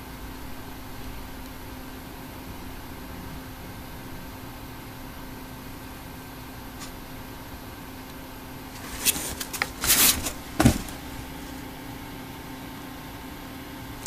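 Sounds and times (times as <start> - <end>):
low steady hum: 0.0 - 14.0
dog paws scraping cardboard: 8.7 - 11.5
thump: 10.6 - 11.0.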